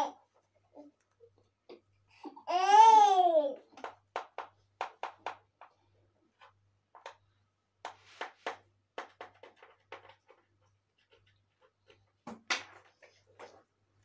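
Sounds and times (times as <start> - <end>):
small child crying: 2.4 - 3.7.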